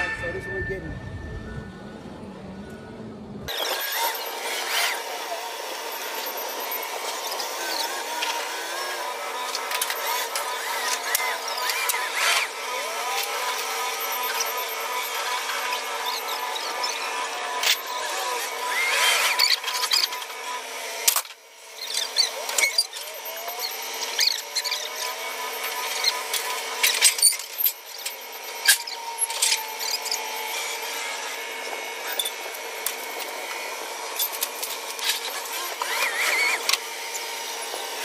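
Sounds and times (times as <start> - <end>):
forklift mechanical whine: 0.0 - 38.0
short squeals: 21.1 - 36.8.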